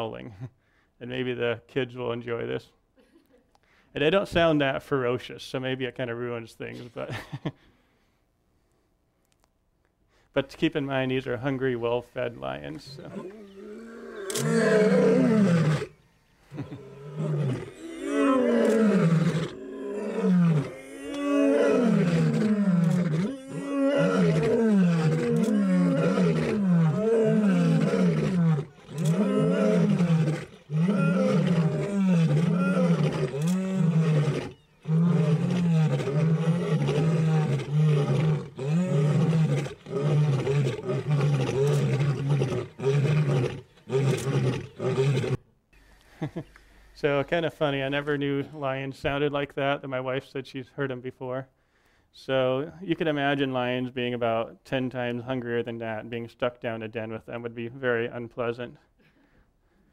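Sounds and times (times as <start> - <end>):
lions roaring: 12.9 - 45.4.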